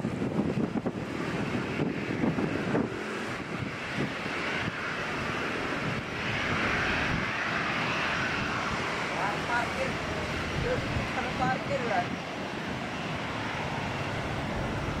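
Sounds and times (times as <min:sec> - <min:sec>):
jet engines roaring: 0:00.0 - 0:15.0
wind rumble on microphone: 0:00.0 - 0:15.0.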